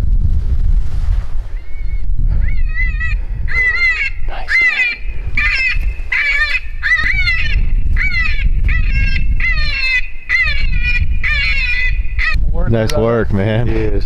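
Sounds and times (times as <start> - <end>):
wind rumble on microphone: 0.0 - 14.0
high-pitched animal distress cry: 2.4 - 12.4.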